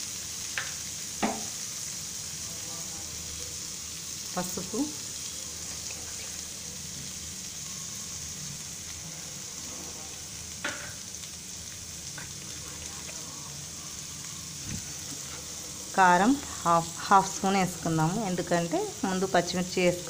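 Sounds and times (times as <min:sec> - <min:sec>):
cabbage sizzling in a frying pan: 0:00.0 - 0:20.0.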